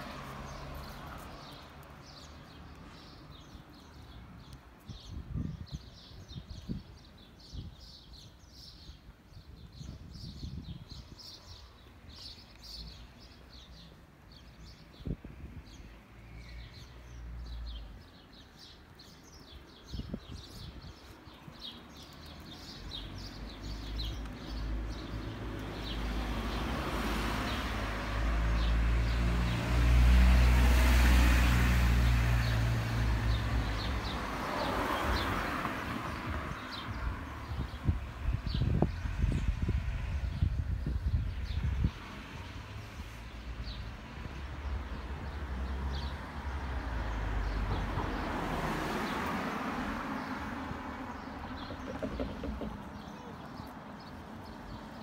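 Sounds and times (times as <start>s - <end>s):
small birds chirping: 0.0s - 29.2s, 50.0s - 55.0s
car passing: 22.8s - 37.5s, 41.9s - 55.0s.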